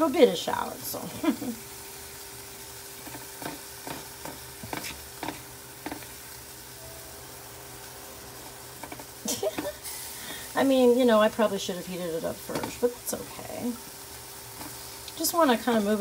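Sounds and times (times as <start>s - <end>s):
shallots sizzling in a pan: 0.0s - 16.0s
spatula scraping a pan: 3.0s - 6.2s.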